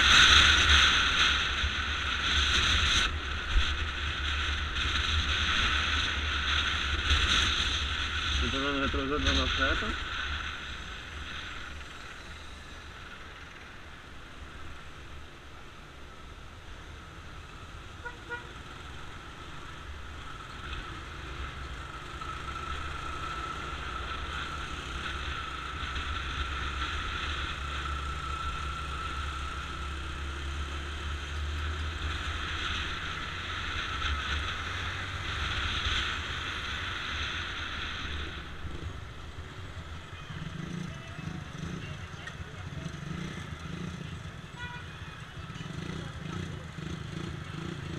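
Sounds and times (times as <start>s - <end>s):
road and traffic noise: 0.0s - 47.9s
motorcycle engine running: 18.0s - 47.9s.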